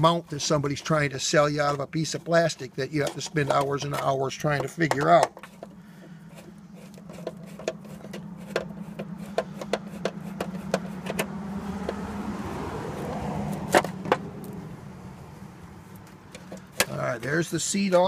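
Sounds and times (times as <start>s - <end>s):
steady low hum: 0.0s - 17.7s
screwdriver turning screws: 3.0s - 12.0s.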